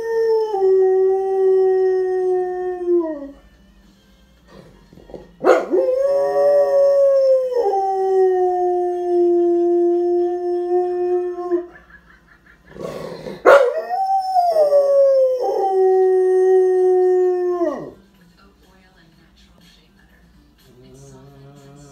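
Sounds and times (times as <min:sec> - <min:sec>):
dog howling: 0:13.3 - 0:18.0.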